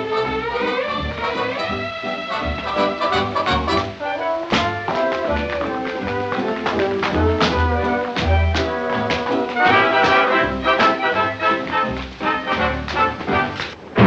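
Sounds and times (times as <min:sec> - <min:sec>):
brass swing orchestra playing: 0:00.0 - 0:13.8
tap shoes clicking on floor: 0:02.6 - 0:13.8.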